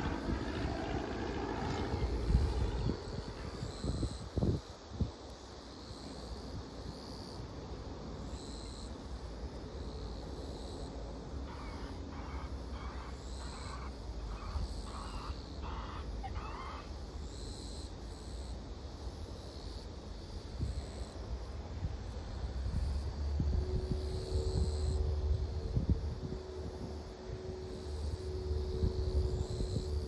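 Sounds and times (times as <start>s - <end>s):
low outdoor rumble: 0.0s - 4.7s, 21.5s - 30.0s
short animal calls: 11.5s - 17.0s.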